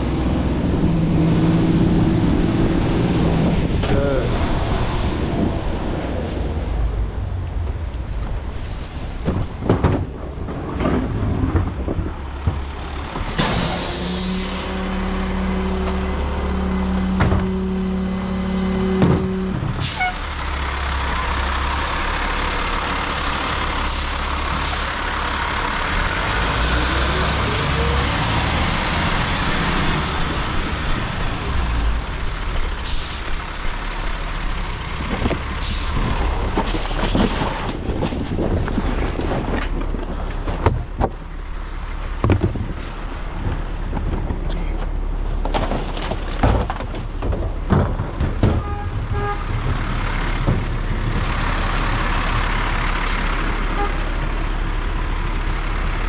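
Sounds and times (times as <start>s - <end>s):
garbage truck engine rumbling: 0.0s - 56.0s
air brakes hissing: 8.5s - 9.2s, 13.4s - 14.8s, 23.8s - 25.0s, 32.2s - 33.9s, 35.4s - 36.2s.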